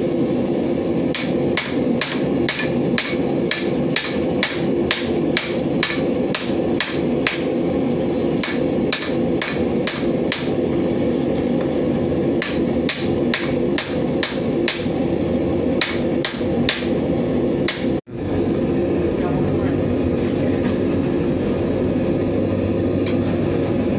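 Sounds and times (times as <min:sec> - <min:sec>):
steady hum: 0:00.0 - 0:23.9
hammer striking hot metal on anvil: 0:01.1 - 0:07.6, 0:08.3 - 0:10.7, 0:12.3 - 0:15.0, 0:15.7 - 0:17.0, 0:17.6 - 0:18.0.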